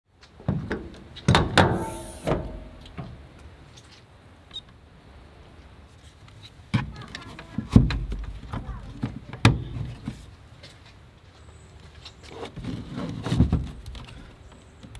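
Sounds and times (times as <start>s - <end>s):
door clunks with metallic ring: 1.3s - 3.1s.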